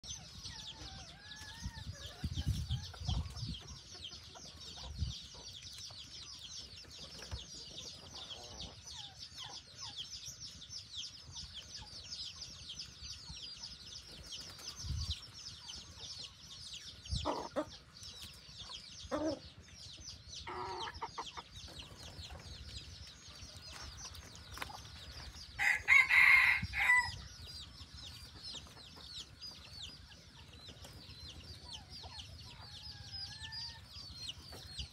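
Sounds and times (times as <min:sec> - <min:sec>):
roosters clucking: 0:00.0 - 0:34.9
rooster crowing: 0:25.6 - 0:27.2.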